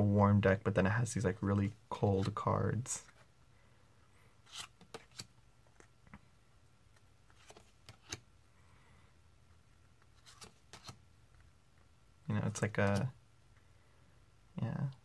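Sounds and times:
cards clicking and sliding: 2.1 - 3.2, 4.4 - 5.9, 7.0 - 8.3, 9.9 - 11.0, 12.5 - 13.1.

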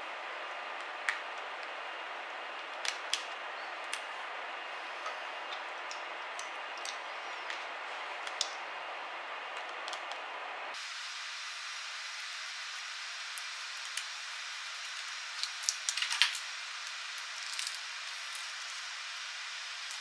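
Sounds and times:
steady background hiss: 10.5 - 20.0.

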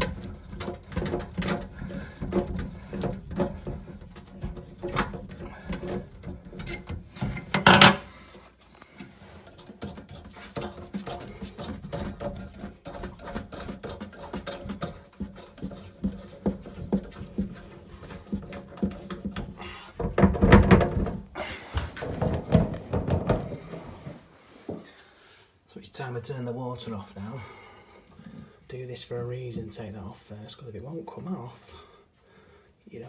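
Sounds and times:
knocks and rustles: 0.0 - 25.0.

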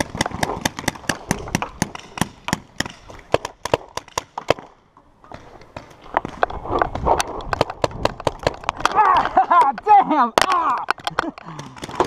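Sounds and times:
paintball markers firing: 0.0 - 4.8, 10.4 - 12.0.

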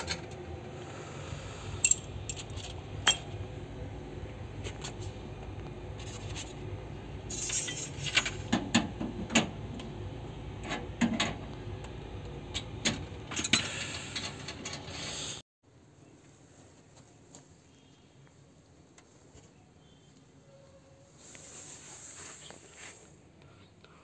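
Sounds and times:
metal tools clinking: 1.8 - 3.4.

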